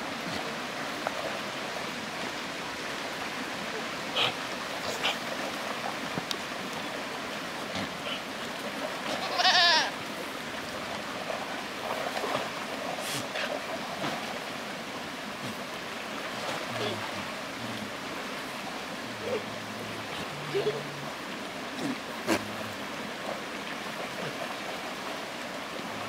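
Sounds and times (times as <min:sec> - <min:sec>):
goat bleating: 0:09.1 - 0:09.9
faint goat calls: 0:09.1 - 0:10.0.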